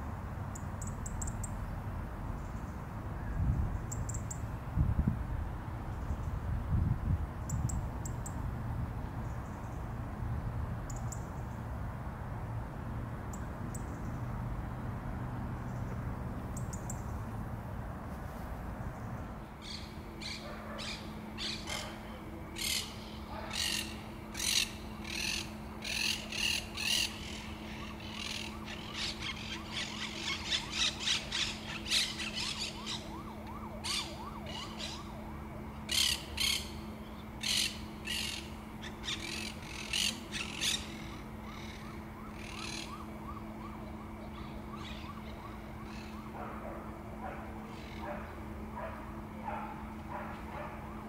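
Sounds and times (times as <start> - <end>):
robin tick calls: 3.8 - 4.4, 10.9 - 11.5, 15.6 - 17.1, 37.4 - 43.0.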